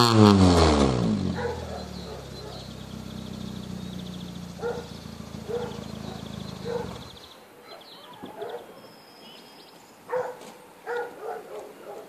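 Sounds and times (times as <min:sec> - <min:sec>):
car engine idling: 0:00.0 - 0:07.3
animal barking: 0:01.2 - 0:03.3, 0:04.5 - 0:08.8, 0:10.1 - 0:12.0
faint high chirping: 0:01.4 - 0:11.9.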